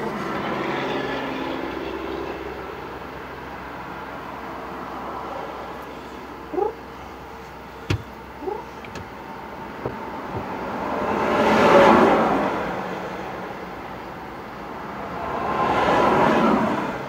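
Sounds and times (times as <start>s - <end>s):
vehicle passing on highway: 0.0s - 17.0s
sharp knocks: 7.9s - 8.2s, 9.8s - 10.6s.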